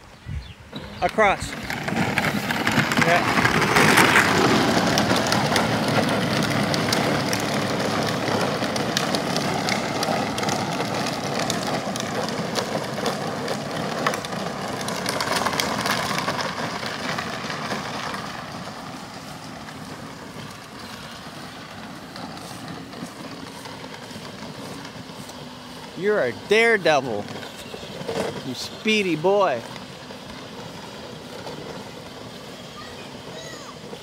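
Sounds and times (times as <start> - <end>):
plastic wheels rattling on pavement: 0.7 - 34.0
electric motor and gearbox whine: 0.8 - 34.0.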